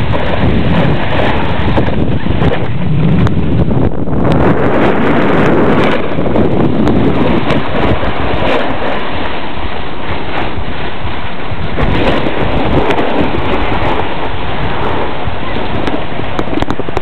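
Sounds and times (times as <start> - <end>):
wind rushing over microphone: 0.0 - 17.0
skis scraping on snow: 4.7 - 16.9.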